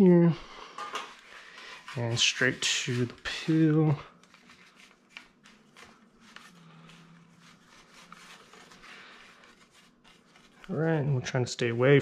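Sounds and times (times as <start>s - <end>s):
dough rubbing on pizza peel: 1.2s - 4.7s, 5.7s - 11.0s.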